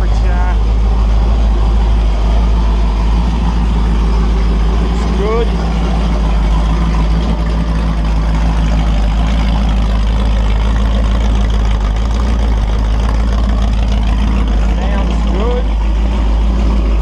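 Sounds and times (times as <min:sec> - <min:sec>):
engine running through open headers: 0:00.0 - 0:17.0.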